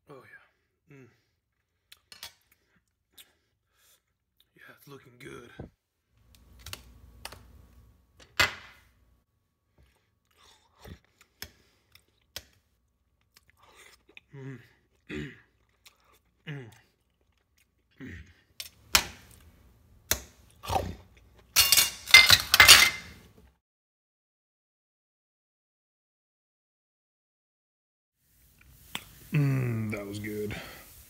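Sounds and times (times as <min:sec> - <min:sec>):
chewing: 0:01.5 - 0:04.5, 0:09.7 - 0:12.6, 0:13.2 - 0:19.5
cutlery clatter and scraping: 0:21.5 - 0:23.2
knife and fork clinking on plate: 0:21.5 - 0:23.2.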